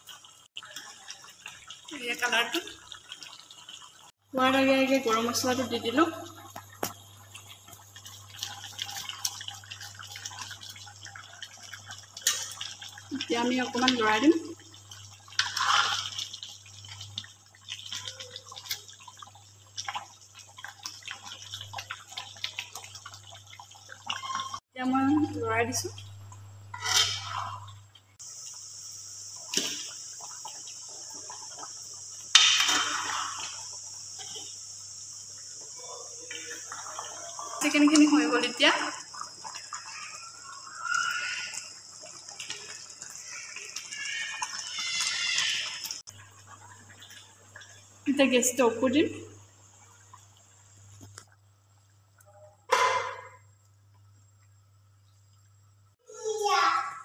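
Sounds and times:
curry bubbling: 0.0s - 56.2s
metal ladle scraping pan: 26.7s - 27.7s.

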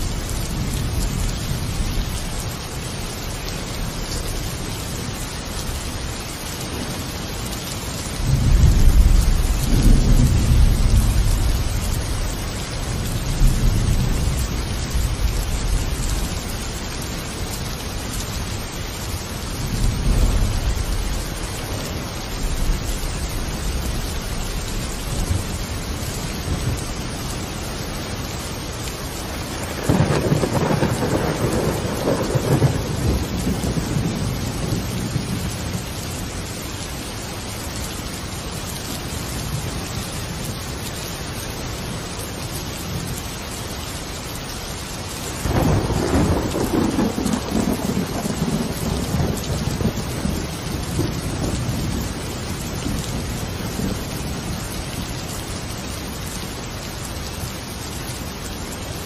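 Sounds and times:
steady rain: 0.0s - 59.0s
thunder rumbling: 8.1s - 18.7s, 19.4s - 27.2s, 29.0s - 36.0s, 45.4s - 55.0s.

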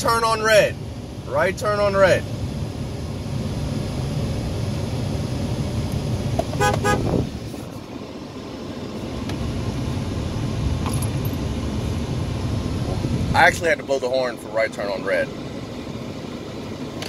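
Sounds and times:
low engine and cabin hum: 0.0s - 17.0s
truck horn toots: 6.6s - 7.2s.

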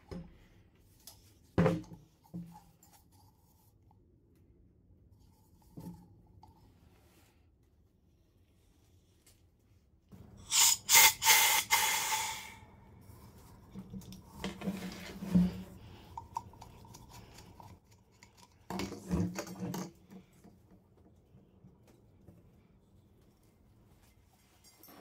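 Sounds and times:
extinguisher gas rushing: 10.4s - 12.8s.

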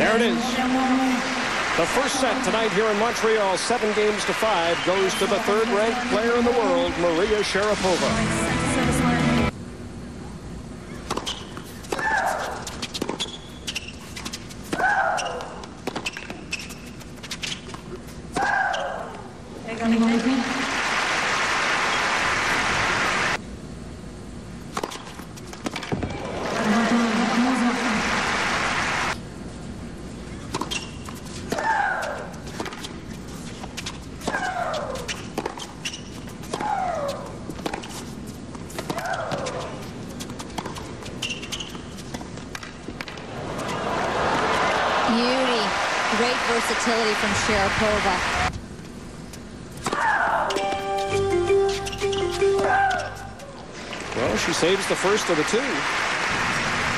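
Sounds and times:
footwork on hard court: 11.1s - 19.2s, 30.4s - 43.8s, 48.8s - 53.7s
player shrieking: 52.6s - 53.3s.

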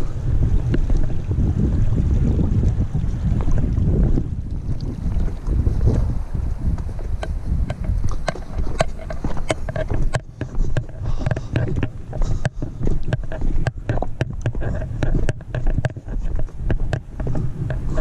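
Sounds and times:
microphone handling noise: 0.0s - 18.0s
wind rumble on microphone: 0.0s - 18.0s
footsteps on cobbles: 6.6s - 18.0s.

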